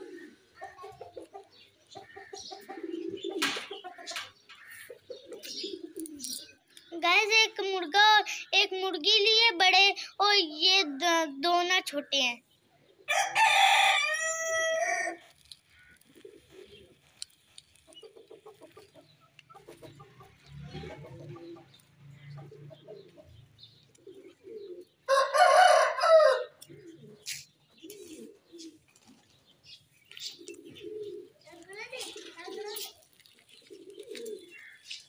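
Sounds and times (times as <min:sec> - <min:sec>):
chicken clucking: 0:00.0 - 0:06.2, 0:17.6 - 0:23.4
rooster crowing: 0:13.1 - 0:15.2, 0:25.1 - 0:26.6.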